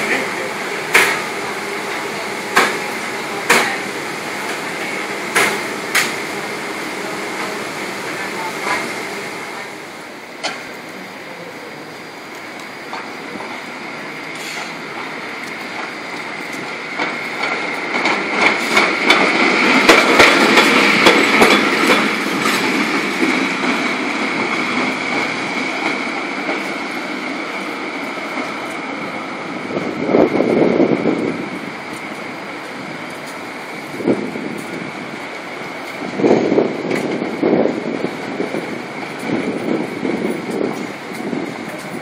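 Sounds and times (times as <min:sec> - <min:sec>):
wheels clicking on rails: 0:00.0 - 0:09.8, 0:12.2 - 0:29.0, 0:29.7 - 0:42.0
streetcar rolling past: 0:00.0 - 0:42.0.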